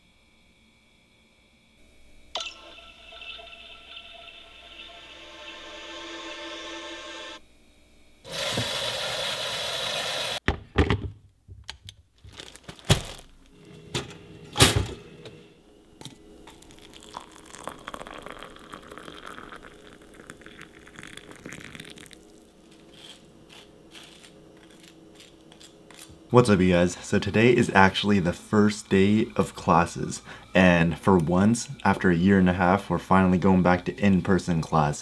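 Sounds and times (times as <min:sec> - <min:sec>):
water poured into a mug: 0:16.5 - 0:22.5
knife scraping toast: 0:22.7 - 0:26.2.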